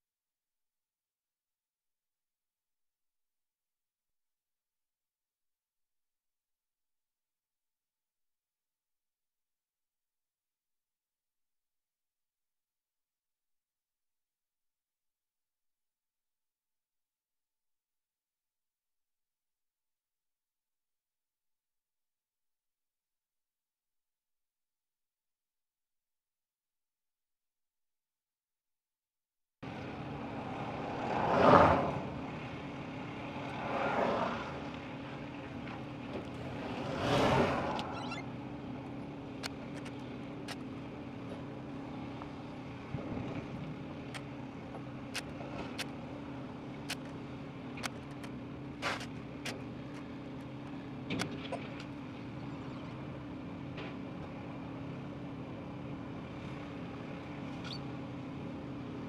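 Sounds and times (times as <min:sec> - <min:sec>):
heavy machinery engine hum: 0:29.6 - 0:59.0
passing vehicles: 0:29.6 - 0:59.0.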